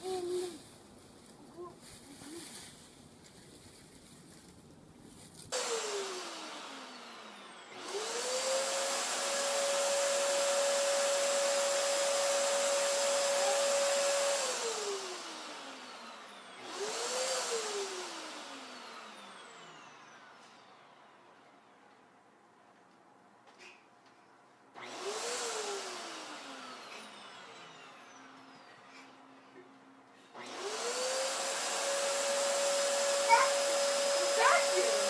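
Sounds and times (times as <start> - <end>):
vacuum cleaner motor whining: 5.6 - 20.6, 24.8 - 28.7, 30.4 - 35.0.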